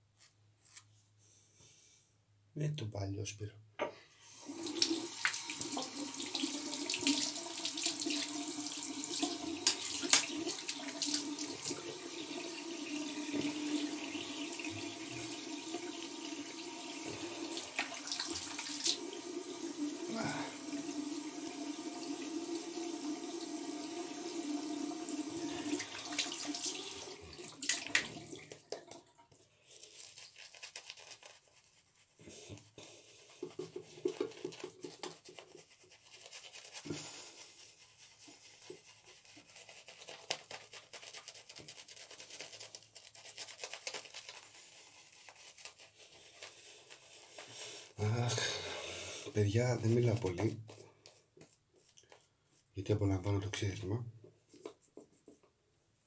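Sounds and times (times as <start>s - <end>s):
sink tap running: 4.4s - 29.0s
water splashing on face: 9.2s - 11.8s, 27.4s - 29.0s
shaving brush swishing: 29.8s - 47.8s.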